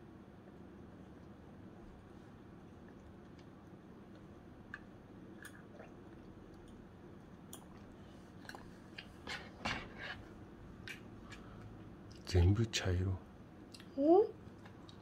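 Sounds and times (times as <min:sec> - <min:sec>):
child chewing food: 0:01.1 - 0:12.6, 0:13.6 - 0:15.0.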